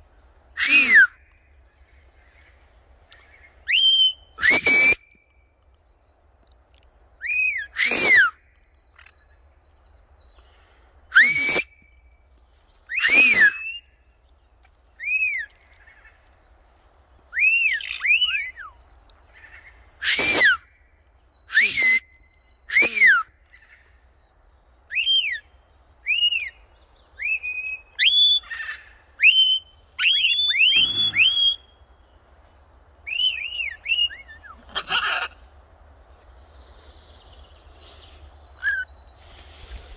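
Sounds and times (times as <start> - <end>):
parrots shrieking: 0.6 - 1.1, 3.8 - 5.0, 7.8 - 8.3, 11.2 - 11.7, 12.9 - 13.7, 20.0 - 20.6, 21.5 - 22.0, 22.7 - 23.2, 28.1 - 31.6, 33.9 - 35.4
parrots whistling: 3.7 - 5.0, 7.8 - 8.3, 11.2 - 11.7, 13.0 - 13.8, 20.0 - 20.6, 21.5 - 22.0, 29.2 - 31.6.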